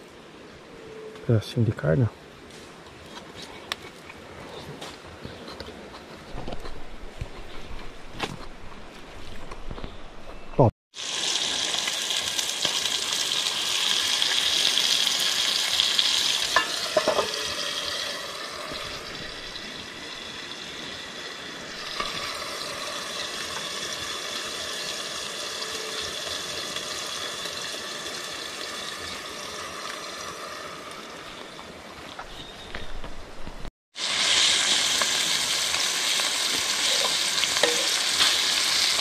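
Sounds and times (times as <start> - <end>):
meat sizzling in hot oil: 10.9 - 31.2, 34.0 - 39.0.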